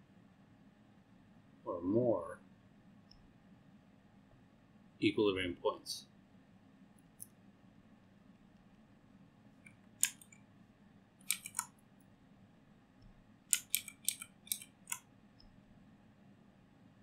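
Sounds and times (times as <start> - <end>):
stylus tapping on pen tablet: 11.2 - 11.7, 13.5 - 15.0.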